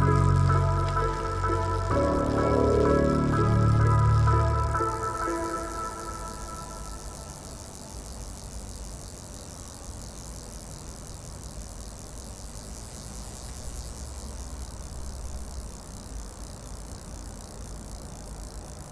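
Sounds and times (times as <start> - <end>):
low rumble: 0.0 - 7.4
high hiss: 0.0 - 18.9.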